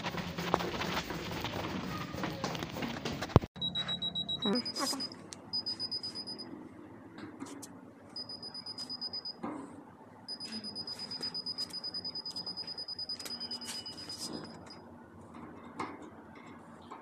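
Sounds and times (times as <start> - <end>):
meter high-pitched beeping: 3.6 - 6.5, 8.2 - 9.4, 10.3 - 14.8.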